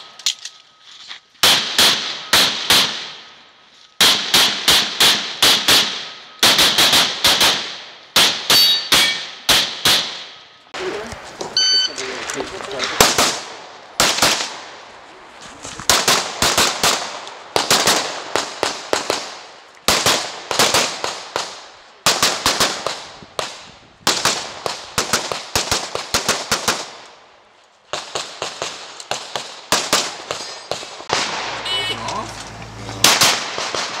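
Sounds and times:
pistol shots: 4.0 - 10.4.

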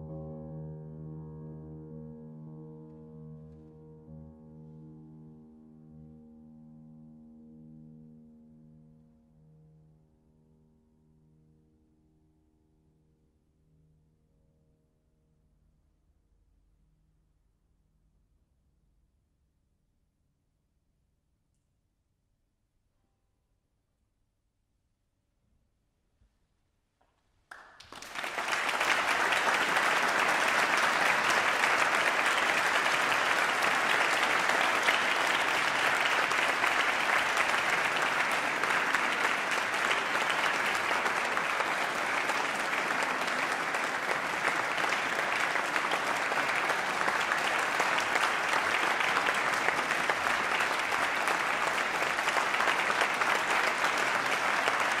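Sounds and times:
audience applauding: 27.5 - 55.0.

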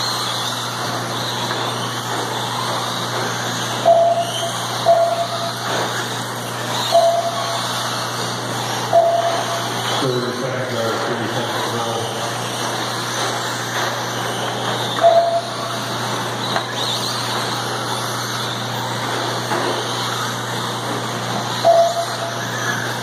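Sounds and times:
remote control cars racing: 0.0 - 23.0
short tone: 3.9 - 5.5, 6.9 - 7.6, 8.9 - 9.7, 15.0 - 15.6, 21.6 - 22.3.

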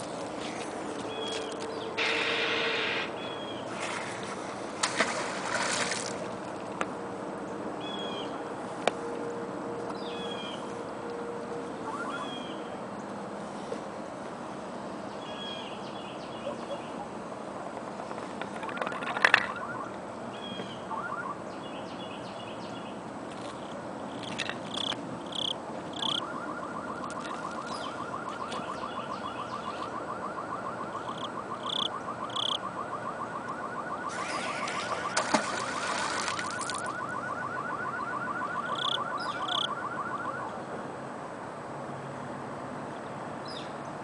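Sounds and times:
birds chirping: 0.9 - 3.8, 11.7 - 13.2, 14.8 - 17.2, 18.0 - 32.6, 33.3 - 39.9.

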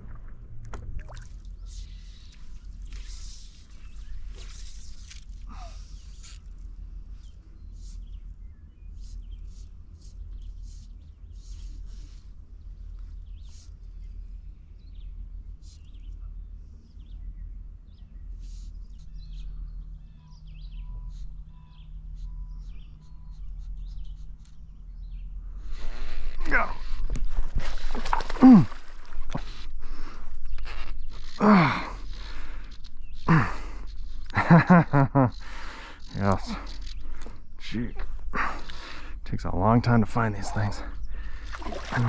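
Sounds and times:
small water splashes: 0.0 - 1.6, 27.6 - 29.2, 41.3 - 42.0
steady low rumble: 0.0 - 23.1, 23.9 - 42.0
faint bird chirps: 1.5 - 26.8.

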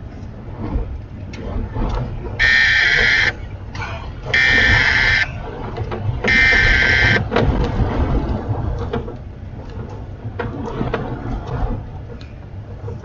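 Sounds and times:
low vehicle rumble: 0.0 - 13.0
buzzy electronic alert beeps: 2.4 - 3.3, 4.4 - 5.3, 6.3 - 7.2
small rattles and clicks: 5.2 - 13.0.

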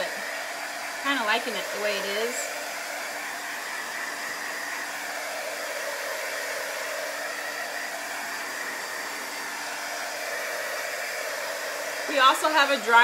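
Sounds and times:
hot-air tool blowing: 0.0 - 13.0.

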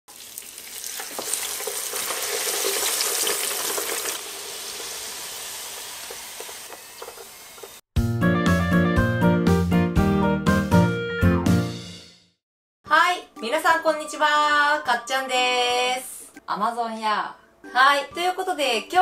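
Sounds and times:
fries sizzling in hot oil: 0.1 - 7.8
keyboard music: 8.0 - 12.0.

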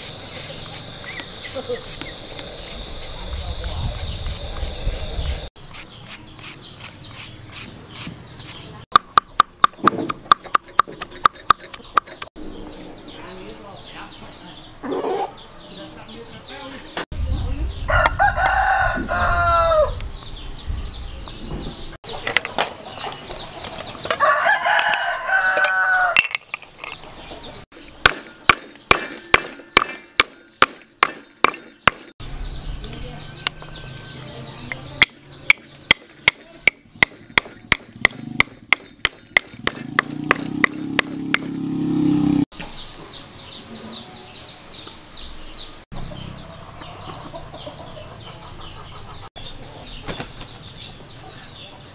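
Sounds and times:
rooster crowing: 17.9 - 20.0, 24.2 - 26.3.

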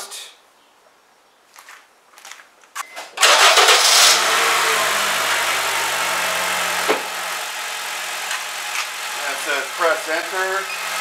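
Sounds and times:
engine cranking: 3.2 - 4.9
car engine idling: 3.2 - 11.0.

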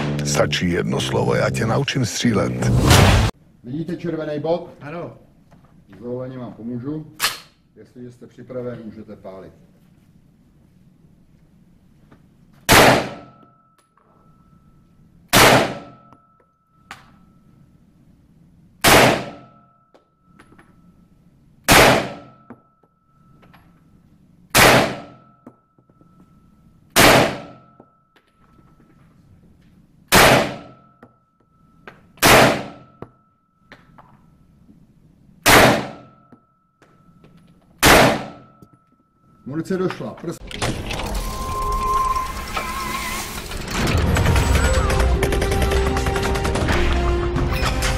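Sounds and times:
handgun shots: 12.7 - 13.3, 15.4 - 16.0, 18.8 - 19.4, 21.7 - 22.3, 24.6 - 25.2, 27.0 - 27.6, 30.1 - 30.7, 32.2 - 32.9, 35.5 - 36.1, 37.8 - 38.5.

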